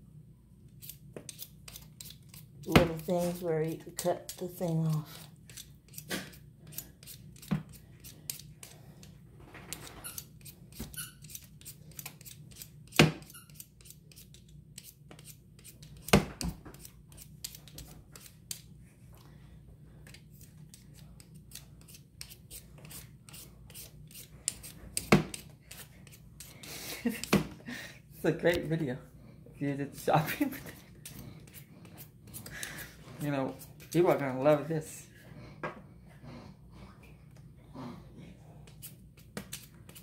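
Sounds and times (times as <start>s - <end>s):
peeler scraping potato skin: 0.7s - 9.1s, 9.7s - 18.7s, 20.0s - 27.3s, 30.6s - 34.6s, 38.6s - 40.0s.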